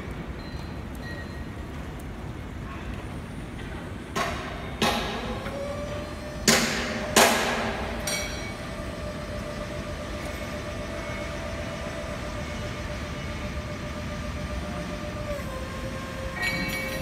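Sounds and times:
hydraulic lift motor whining: 0:05.0 - 0:17.0.

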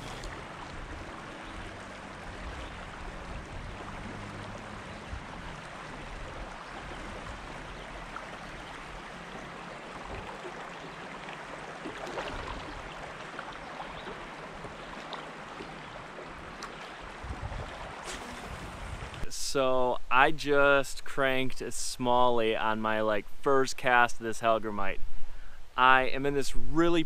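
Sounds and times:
river running over rocks: 0:00.0 - 0:19.3.

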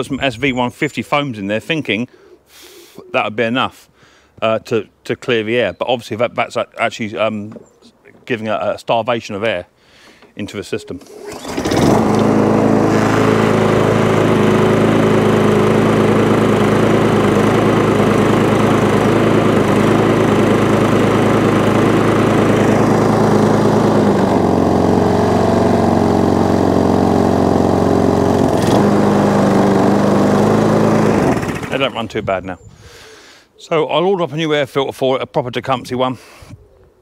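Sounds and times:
person speaking: 0:00.0 - 0:09.7, 0:10.3 - 0:11.2, 0:31.1 - 0:32.8
lawn mower engine running: 0:11.0 - 0:32.1.

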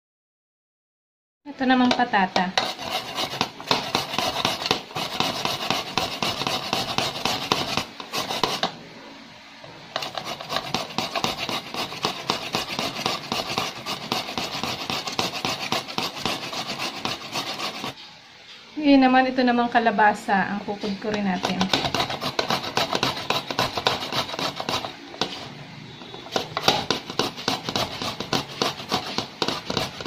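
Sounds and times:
potato grated on metal grater: 0:01.6 - 0:08.7, 0:10.0 - 0:18.0, 0:21.2 - 0:25.6, 0:26.2 - 0:30.0.

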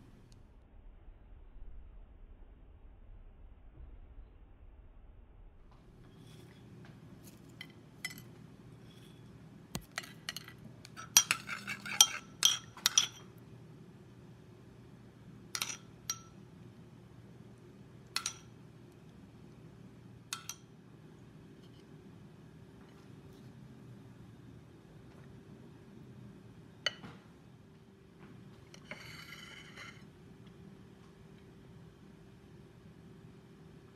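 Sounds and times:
steady low hum: 0:00.0 - 0:33.9
metal spoon clinking on dishes: 0:07.3 - 0:08.3, 0:09.8 - 0:13.4, 0:15.6 - 0:16.4, 0:18.1 - 0:18.6, 0:20.3 - 0:20.7.

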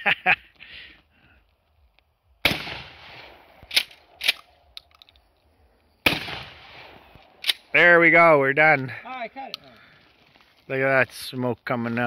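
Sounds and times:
shotgun shots: 0:02.4 - 0:04.5, 0:06.0 - 0:07.7.

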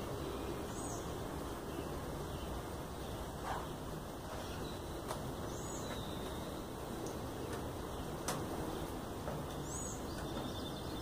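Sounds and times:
steady background hiss: 0:00.0 - 0:11.0
faint clicks: 0:07.0 - 0:08.5.

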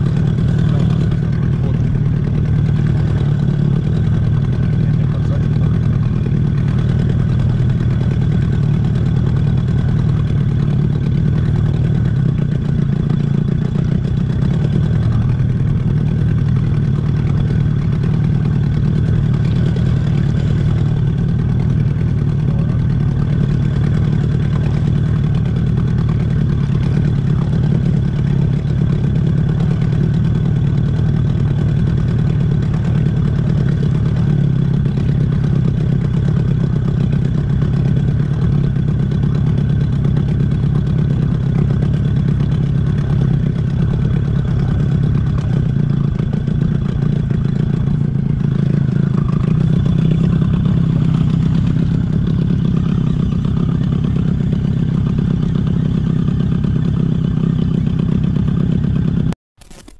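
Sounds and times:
outboard motor running: 0:00.0 - 0:59.9.

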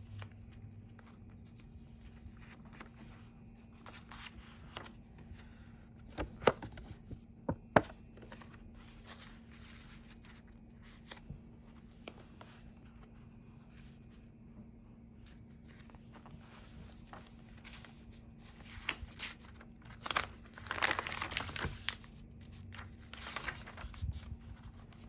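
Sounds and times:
paper rustling and sliding: 0:15.2 - 0:25.0.

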